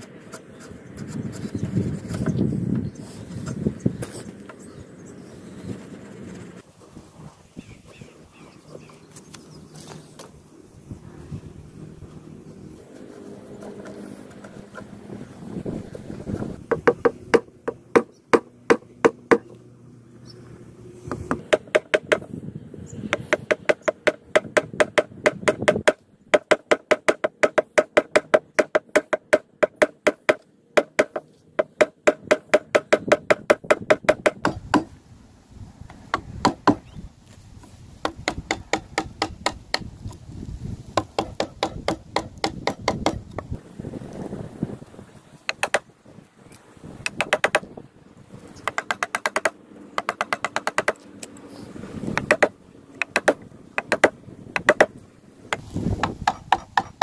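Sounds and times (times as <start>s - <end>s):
chisel chopping into timber: 23.1s - 34.9s, 36.1s - 36.8s, 38.0s - 39.9s, 41.0s - 43.4s, 45.5s - 45.8s, 47.1s - 47.7s, 52.2s - 54.9s, 55.5s - 57.0s.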